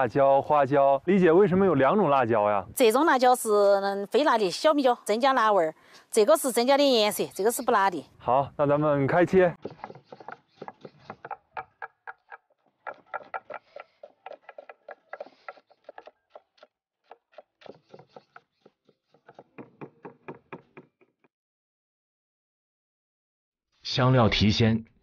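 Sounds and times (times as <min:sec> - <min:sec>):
cleavers chopping on wooden board: 0:09.6 - 0:12.2, 0:12.9 - 0:21.0.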